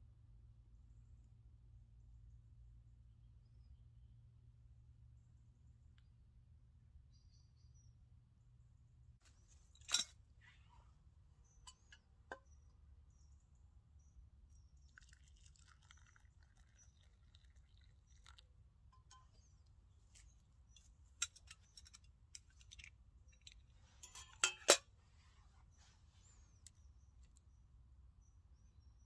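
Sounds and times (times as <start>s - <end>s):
metal mug clinking: 9.8s - 10.1s, 15.0s - 19.5s, 20.2s - 24.9s
liquid pouring into cup: 14.8s - 18.6s.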